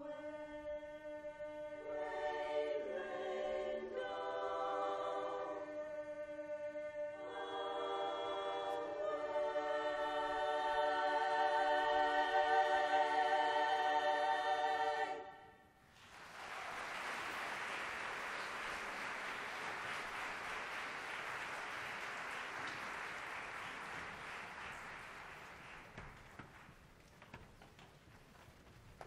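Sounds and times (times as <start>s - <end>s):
women's chorus singing a cappella: 0.0s - 15.6s
applause: 15.9s - 27.2s.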